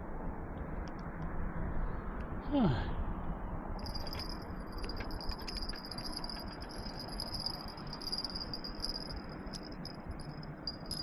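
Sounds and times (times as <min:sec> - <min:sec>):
low background rumble: 0:00.0 - 0:11.0
fishing tackle clicking and rattling: 0:03.8 - 0:11.0
insects trilling: 0:03.8 - 0:11.0.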